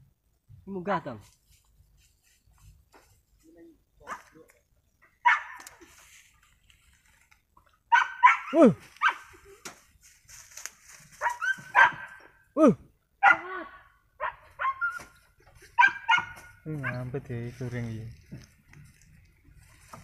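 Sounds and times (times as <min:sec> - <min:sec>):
dogs barking and yelping: 0:05.1 - 0:05.8, 0:07.9 - 0:09.5, 0:11.1 - 0:12.4, 0:13.2 - 0:17.1.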